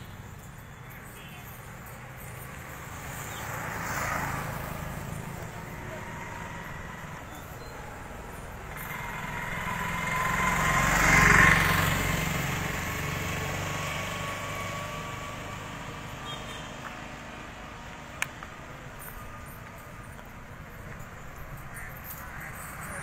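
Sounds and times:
small engine passing by: 2.4 - 16.1.

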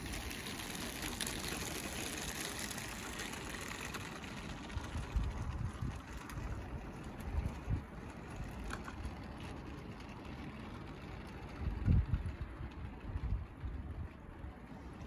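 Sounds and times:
model train motor whirring: 0.0 - 14.0
wheels ticking on rails: 0.0 - 15.0
wind on microphone: 4.6 - 8.6, 11.5 - 14.2.

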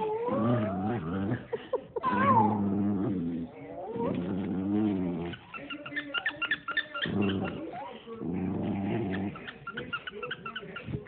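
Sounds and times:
dog whining: 0.0 - 1.3, 2.0 - 3.0
small dog growling: 0.0 - 5.6, 6.9 - 9.9.

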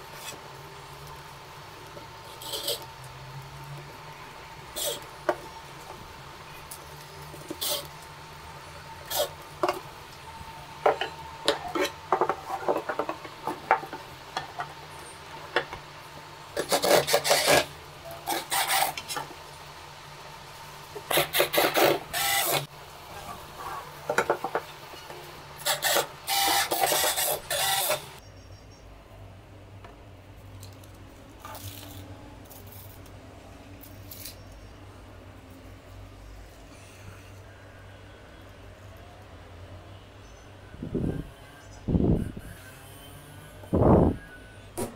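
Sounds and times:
cordless drill driving screws: 18.3 - 19.0, 21.1 - 22.7, 25.6 - 28.2.

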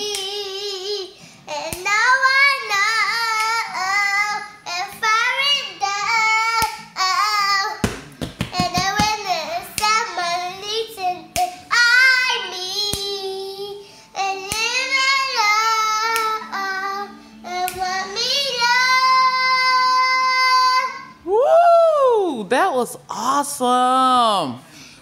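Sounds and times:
girl singing unaccompanied: 0.0 - 21.3.

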